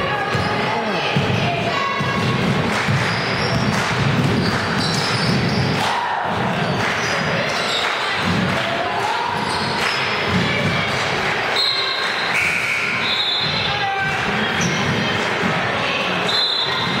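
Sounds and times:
basketball bouncing on court: 0:00.0 - 0:08.6, 0:09.3 - 0:11.0
voices of players and spectators: 0:00.0 - 0:17.0
shoe squeaks: 0:03.0 - 0:03.7, 0:04.4 - 0:05.7.

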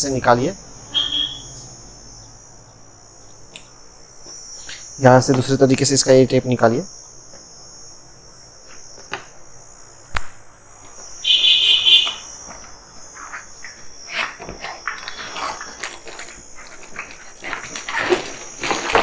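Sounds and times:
high-pitched whine: 0:00.0 - 0:19.0
cardboard scraping and rustling: 0:13.2 - 0:19.0.

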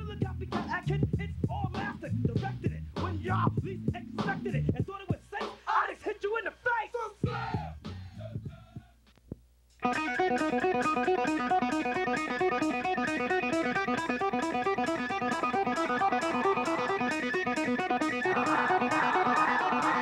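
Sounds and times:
plucked string riff: 0:09.8 - 0:20.0.

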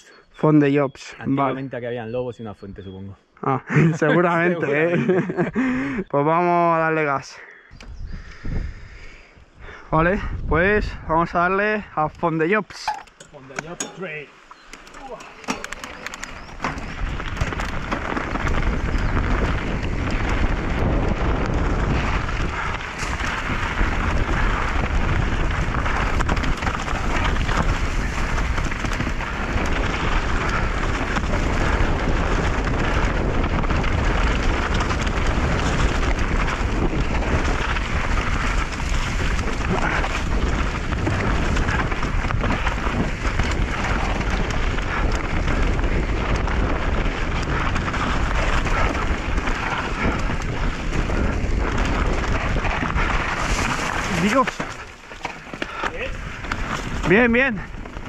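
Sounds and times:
wind on microphone: 0:07.7 - 0:12.2, 0:14.8 - 0:58.0
bike rattling: 0:12.2 - 0:58.0
tyres crunching over stones: 0:12.7 - 0:58.0.

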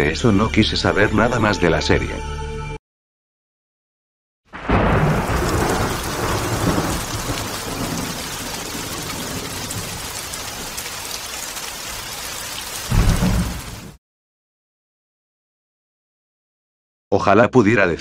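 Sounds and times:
thunder rumble: 0:04.5 - 0:11.3, 0:11.9 - 0:14.0
rain hissing: 0:04.6 - 0:14.0.

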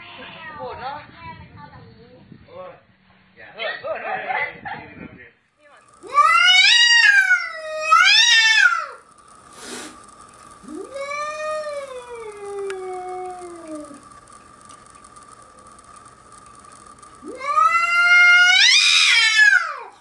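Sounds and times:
cat yowling: 0:06.0 - 0:09.0, 0:10.6 - 0:14.0, 0:17.2 - 0:19.9.

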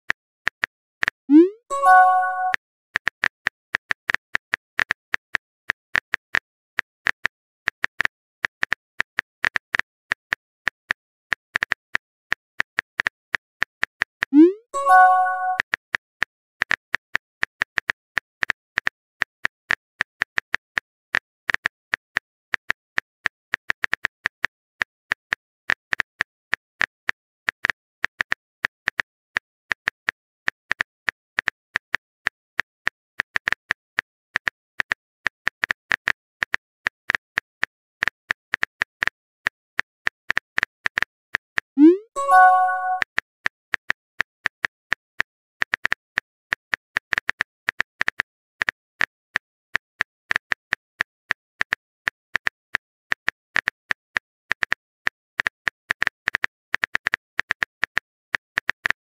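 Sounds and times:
keyboard typing clicks: 0:01.3 - 0:02.6, 0:14.3 - 0:15.6, 0:41.8 - 0:43.1
rising pop with bright tones: 0:41.8 - 0:43.0.

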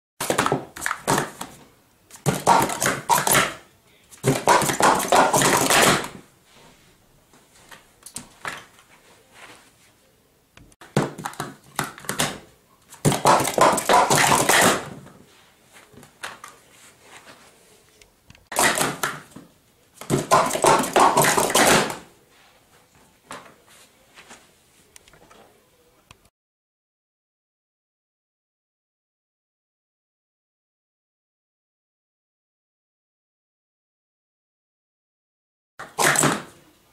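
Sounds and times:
plastic cups clattering on mat: 0:04.2 - 0:06.2, 0:13.0 - 0:15.0, 0:20.0 - 0:22.0.

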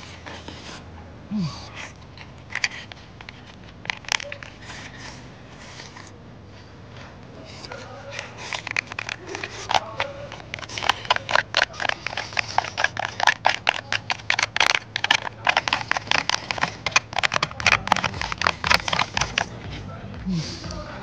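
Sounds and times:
chopsticks clicking on plastic box: 0:02.5 - 0:04.9, 0:07.6 - 0:19.9.

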